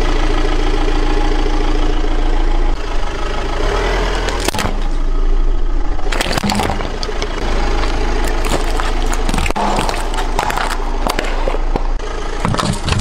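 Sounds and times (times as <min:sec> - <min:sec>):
car engine running: 0:00.0 - 0:13.0
tyre crushing objects on paving: 0:04.2 - 0:05.0, 0:06.0 - 0:13.0.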